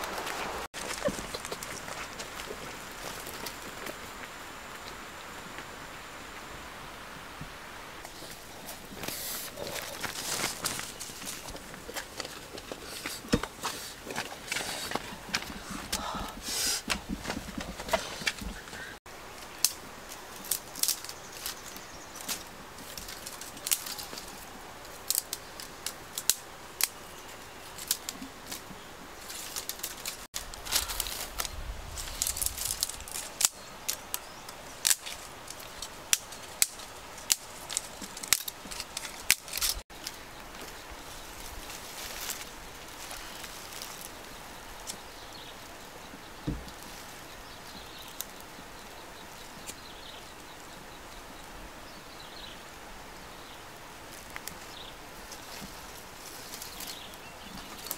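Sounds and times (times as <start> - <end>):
steady outdoor hiss: 0.0 - 57.9
sticks and twigs snapping: 19.4 - 27.1, 27.7 - 40.7, 54.1 - 54.7, 55.3 - 57.9.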